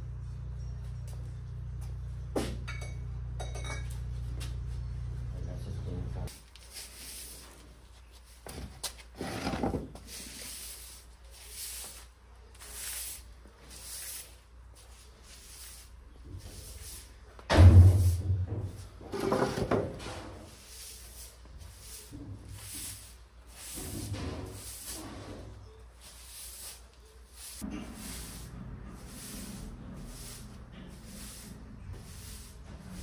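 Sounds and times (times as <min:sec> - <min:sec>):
broom sweeping concrete: 0:06.2 - 0:18.4, 0:19.2 - 0:33.0
heavy thump: 0:17.5 - 0:18.9.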